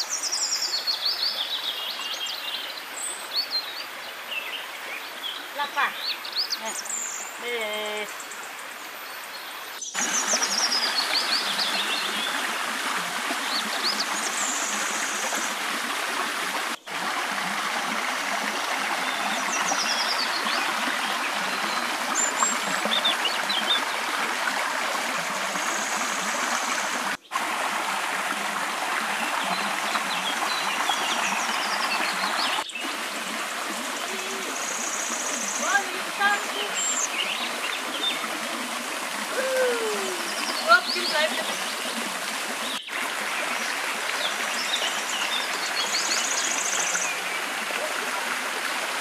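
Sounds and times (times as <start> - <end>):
water rushing into river: 9.8 - 49.0.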